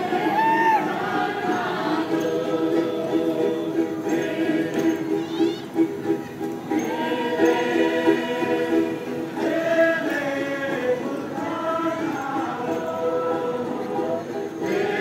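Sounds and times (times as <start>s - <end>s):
group of voices singing: 0.0s - 15.0s.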